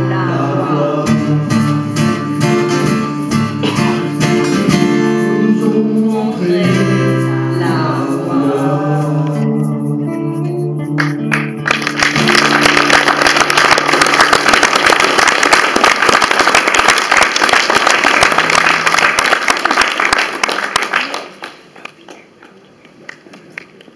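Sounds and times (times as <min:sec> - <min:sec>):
audience applauding: 0:11.0 - 0:23.9.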